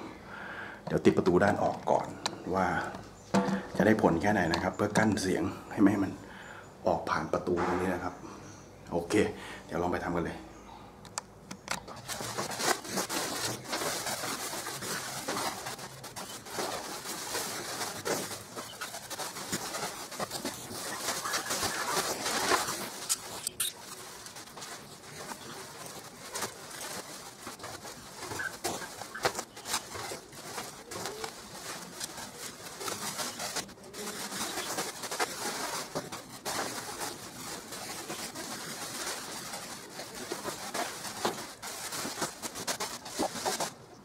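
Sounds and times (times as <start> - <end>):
foil insulation bag crinkling: 11.9 - 44.0.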